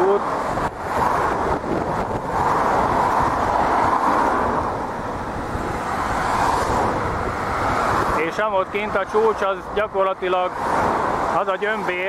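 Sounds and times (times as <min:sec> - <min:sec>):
road traffic: 0:00.0 - 0:12.0
wind rushing: 0:00.2 - 0:09.1.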